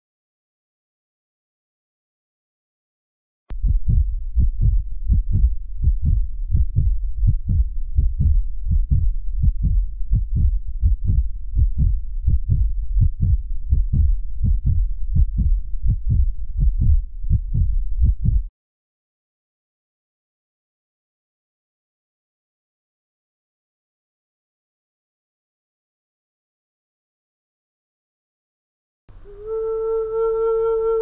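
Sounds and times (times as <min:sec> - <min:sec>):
heartbeat thumps: 0:03.5 - 0:18.5.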